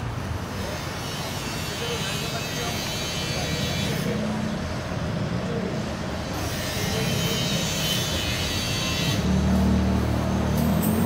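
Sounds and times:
vehicles passing: 0:00.0 - 0:11.0
heavy engine hum: 0:03.9 - 0:11.0.

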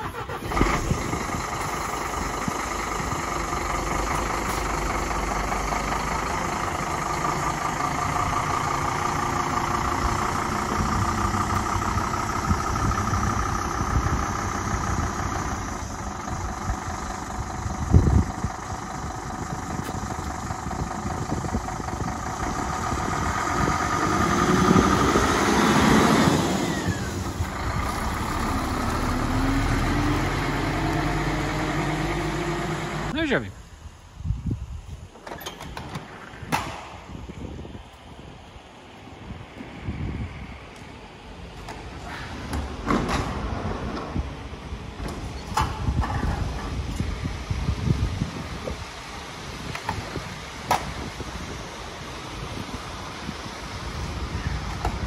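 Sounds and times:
truck diesel engine running: 0:00.0 - 0:34.9.

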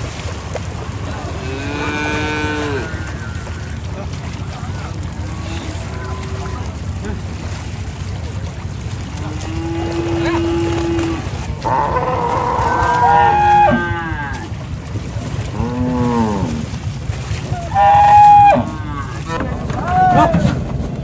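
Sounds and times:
steady low rumble: 0:00.0 - 0:21.0
bulls mooing: 0:01.1 - 0:04.2, 0:05.1 - 0:07.2, 0:09.1 - 0:14.6, 0:15.4 - 0:16.8, 0:17.5 - 0:20.6.

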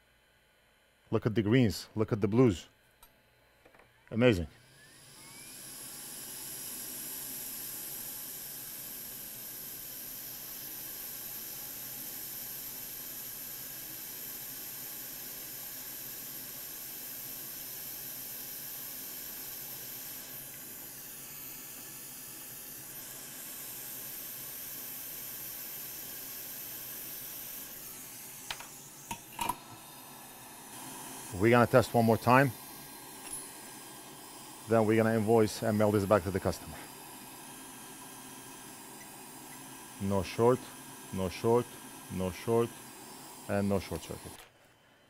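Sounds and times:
hot air station hissing: 0:04.7 - 0:44.4.

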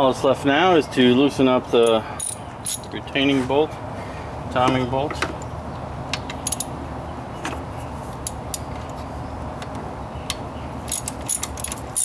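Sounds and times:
steady background noise: 0:00.0 - 0:12.0
wrench metallic clicks: 0:06.4 - 0:06.7, 0:10.3 - 0:12.0.

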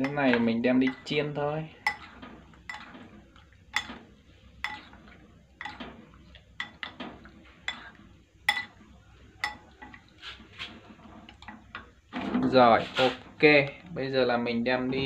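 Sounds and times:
utensils clinking on ceramic bowl: 0:00.0 - 0:01.2, 0:01.8 - 0:03.0, 0:03.7 - 0:04.0, 0:04.6 - 0:05.8, 0:06.6 - 0:07.0, 0:07.7 - 0:08.8, 0:09.4 - 0:10.0
soft wet stirring: 0:00.0 - 0:13.9.

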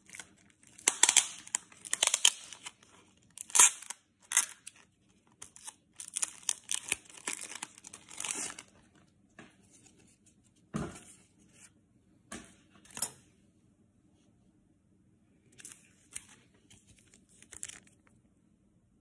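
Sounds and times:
foil wrapper tearing and crinkling: 0:00.0 - 0:08.7, 0:17.0 - 0:18.1.

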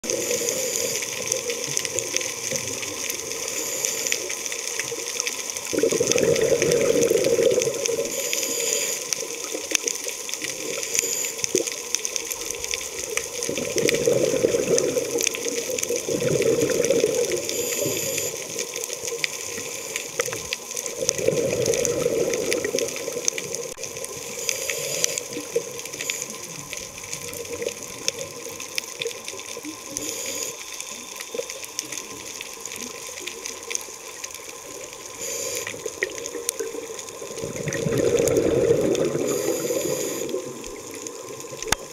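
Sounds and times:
crackle of small clicks: 0:00.0 - 0:41.9
bubbling regulator exhalations: 0:05.7 - 0:08.7, 0:13.4 - 0:18.4, 0:20.2 - 0:27.6, 0:35.2 - 0:41.9.

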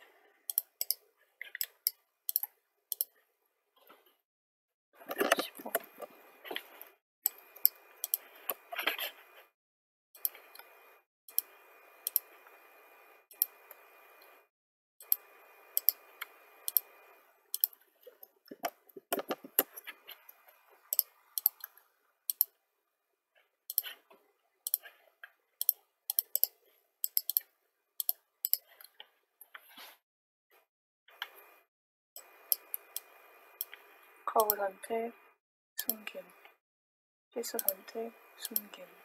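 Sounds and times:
mouse and keyboard clicking: 0:00.5 - 0:03.2, 0:05.1 - 0:08.6, 0:12.1 - 0:12.3, 0:15.8 - 0:16.9, 0:17.6 - 0:22.6, 0:23.7 - 0:24.0, 0:24.7 - 0:24.9, 0:25.6 - 0:29.0, 0:34.4 - 0:34.6, 0:35.8 - 0:36.6, 0:37.5 - 0:38.8.

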